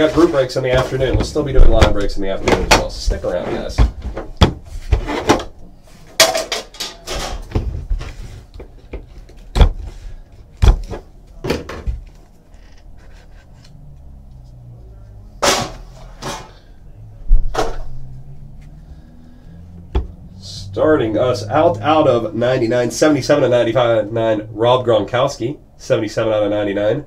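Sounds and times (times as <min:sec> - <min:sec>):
scraping rustles: 0:00.0 - 0:06.1, 0:07.0 - 0:10.3.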